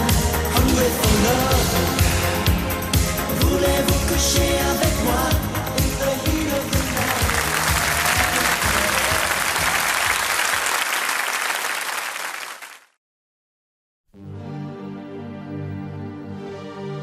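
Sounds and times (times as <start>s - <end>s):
song beats: 0.0s - 10.4s
music: 0.0s - 10.7s, 14.1s - 17.0s
crowd applauding and cheering: 6.2s - 13.0s.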